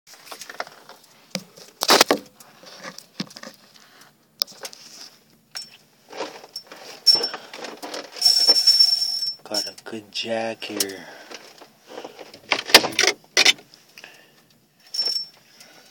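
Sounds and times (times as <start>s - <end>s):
gear handling clicks and rustles: 5.5s - 9.8s, 10.6s - 15.9s.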